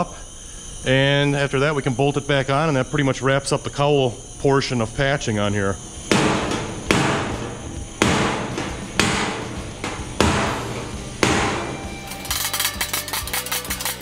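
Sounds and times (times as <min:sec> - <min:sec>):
hammer striking sheet metal: 0:06.1 - 0:14.0.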